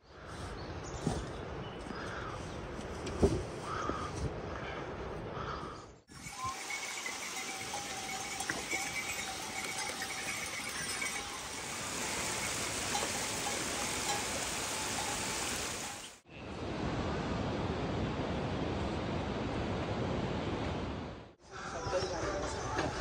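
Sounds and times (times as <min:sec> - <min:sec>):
mule neck bells jingling: 0:06.1 - 0:16.2
waterfall rushing hiss: 0:06.2 - 0:16.2.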